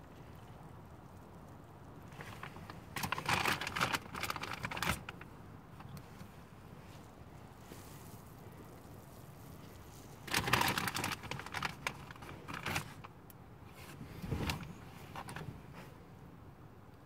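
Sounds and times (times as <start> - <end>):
popcorn bag rustling: 2.1 - 5.3, 7.0 - 13.1.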